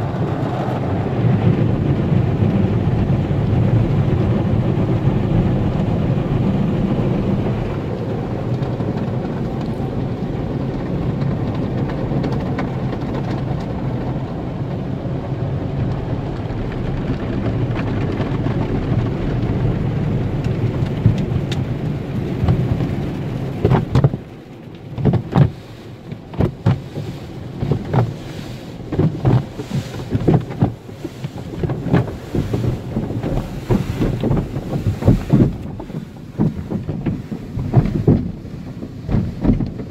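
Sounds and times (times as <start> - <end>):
car wash water spray: 0.0 - 39.9
wash strips slapping car body: 15.5 - 39.9.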